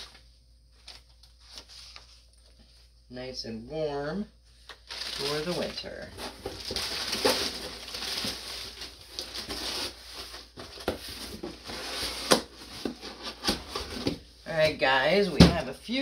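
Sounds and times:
cardboard and clothing rustling: 4.8s - 15.7s.

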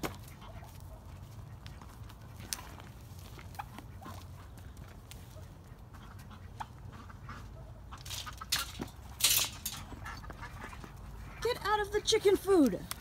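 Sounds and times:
faint clicks and shuffling: 0.0s - 6.4s
faint chickens clucking: 0.0s - 9.0s.

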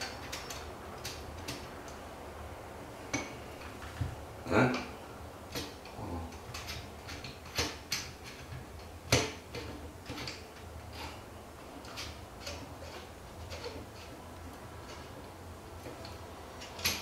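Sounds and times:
metal parts clicking and knocking: 5.5s - 11.2s, 11.8s - 14.2s, 15.8s - 17.0s.

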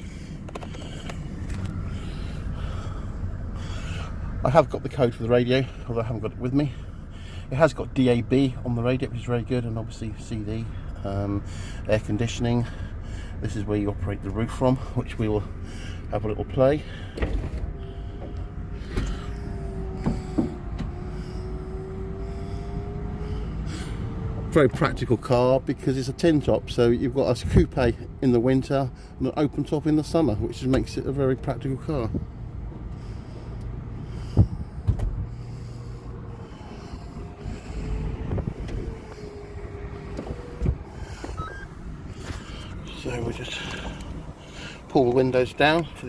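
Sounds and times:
roof motor whine: 0.0s - 4.9s, 16.8s - 24.8s, 32.0s - 44.9s.

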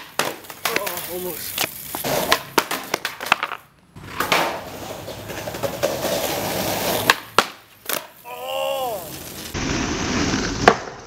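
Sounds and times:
skateboard clacks: 0.0s - 8.1s, 10.4s - 11.0s
skateboard wheels rolling on concrete: 0.0s - 11.0s.

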